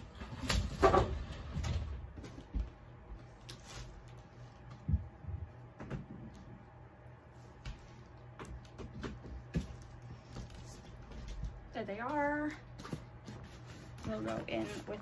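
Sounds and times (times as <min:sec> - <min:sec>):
shuffling and scraping: 0:09.4 - 0:15.0.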